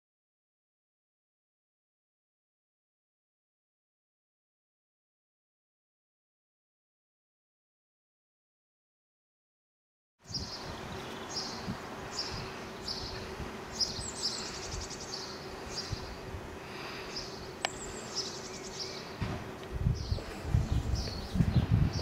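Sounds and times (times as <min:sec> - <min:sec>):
small birds chirping: 0:10.2 - 0:22.0
bird trills: 0:10.3 - 0:16.2, 0:17.1 - 0:19.2
steady low hum: 0:10.3 - 0:22.0.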